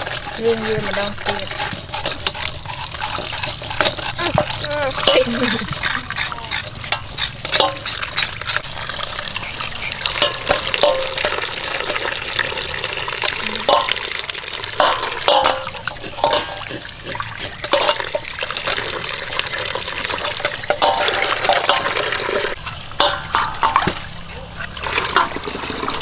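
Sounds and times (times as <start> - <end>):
tap water pouring into metal basin: 0.0 - 26.0
clinks: 10.1 - 12.1.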